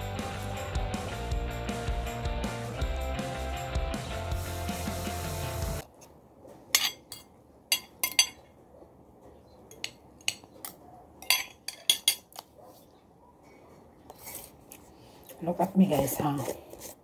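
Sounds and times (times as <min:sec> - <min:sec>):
cutlery clinking on a plate: 0:06.7 - 0:08.5, 0:09.7 - 0:12.5.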